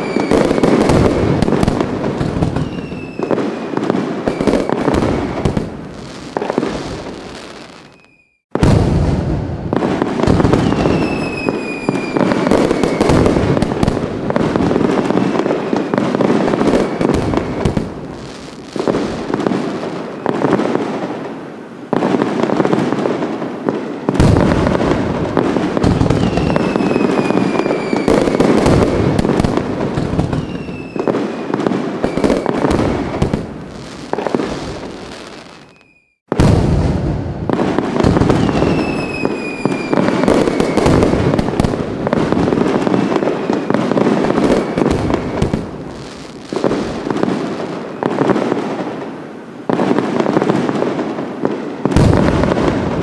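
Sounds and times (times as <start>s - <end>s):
fireworks crackling and popping: 0.0s - 53.0s
whistling tone falling in pitch: 7.9s - 8.4s, 35.6s - 36.2s.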